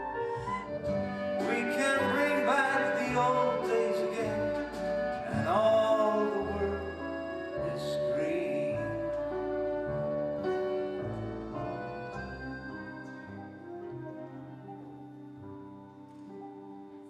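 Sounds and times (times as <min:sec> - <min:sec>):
person singing: 0:00.0 - 0:09.6
sustained instrumental accompaniment: 0:00.0 - 0:17.0.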